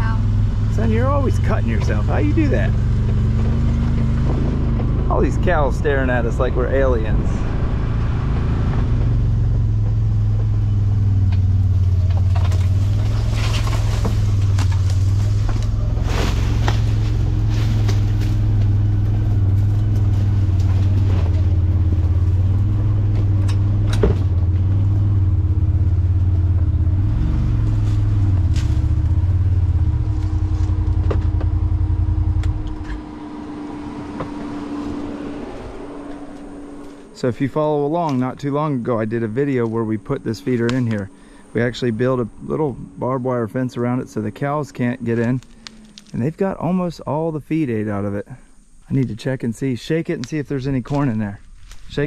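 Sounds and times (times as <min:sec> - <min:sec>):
utility vehicle engine running: 0:00.0 - 0:52.0
knocks and rattles from riding: 0:00.6 - 0:05.8, 0:08.6 - 0:26.8, 0:27.4 - 0:34.8.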